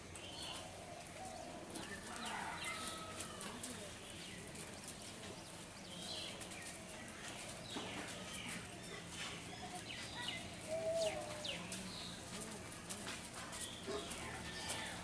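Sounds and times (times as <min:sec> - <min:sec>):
birds chirping and whistling: 0:07.7 - 0:12.2.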